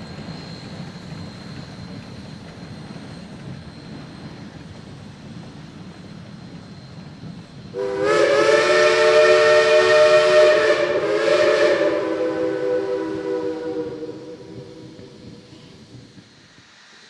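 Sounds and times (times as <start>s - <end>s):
steam hiss: 0.0s - 17.0s
steam locomotive chime whistle: 5.4s - 15.6s.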